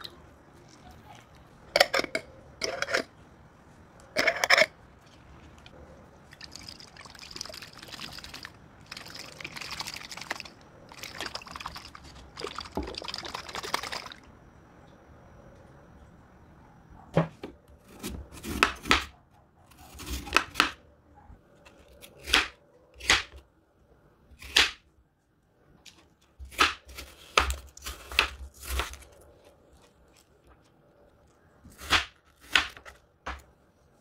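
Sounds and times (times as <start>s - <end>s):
knife cutting apple on board: 17.2s - 19.1s, 19.7s - 20.8s, 22.0s - 23.4s, 26.4s - 29.1s, 31.7s - 33.5s.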